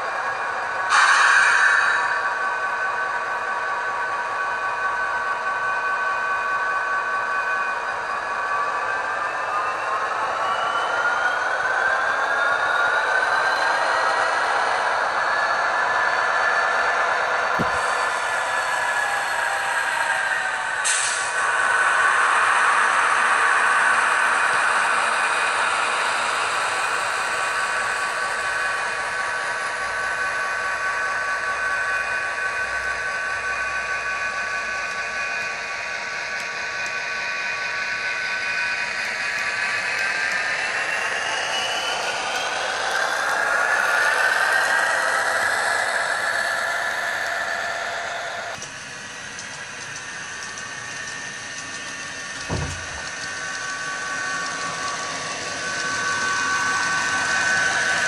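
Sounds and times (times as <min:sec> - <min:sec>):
model locomotive sound whine: 0:00.0 - 0:58.0
low thump: 0:52.4 - 0:53.1.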